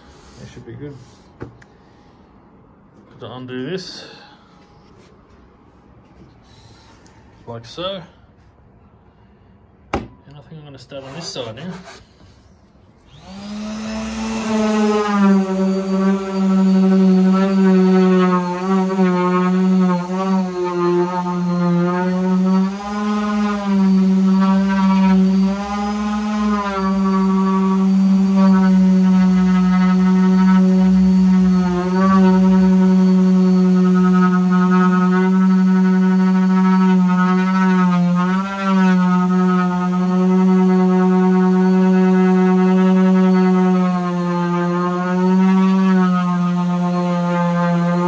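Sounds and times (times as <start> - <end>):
orbital sander humming: 13.0 - 48.0.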